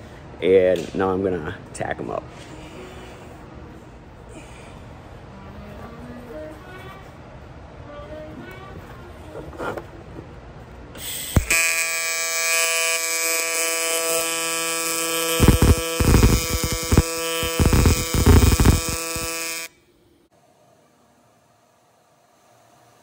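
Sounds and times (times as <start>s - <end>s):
welding arc buzzing: 11.0s - 19.8s.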